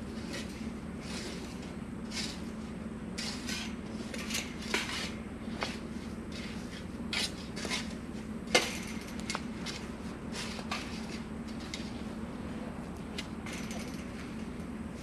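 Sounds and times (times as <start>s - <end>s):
shovel scraping dirt: 0.1s - 12.0s.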